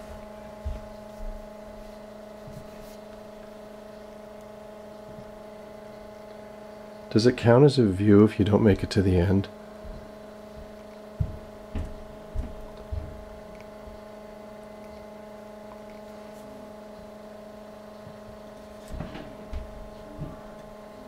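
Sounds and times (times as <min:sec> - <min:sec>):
stepper motors humming: 0:00.0 - 0:21.0
soft low thumps: 0:09.8 - 0:14.0, 0:18.9 - 0:20.8.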